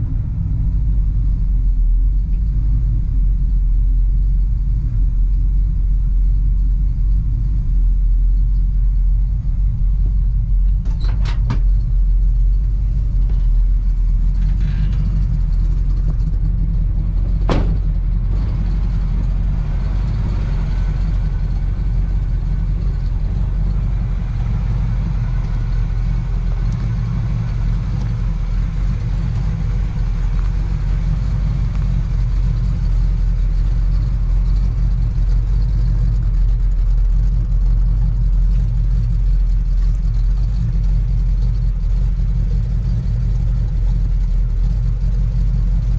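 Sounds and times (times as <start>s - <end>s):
pickup engine idling: 0.0s - 45.9s
door shutting knock: 17.4s - 18.0s.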